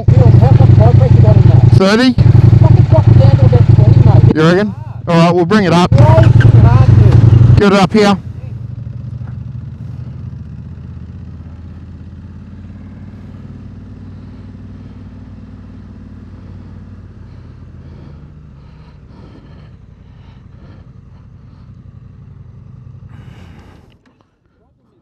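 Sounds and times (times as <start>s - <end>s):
motorcycle engine idling: 0.0s - 24.8s
faint clicks: 23.5s - 24.3s.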